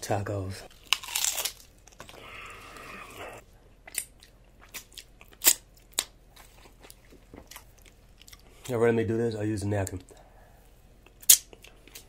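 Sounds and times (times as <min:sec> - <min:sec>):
taco shells cracking: 0:00.7 - 0:02.9, 0:03.8 - 0:08.4.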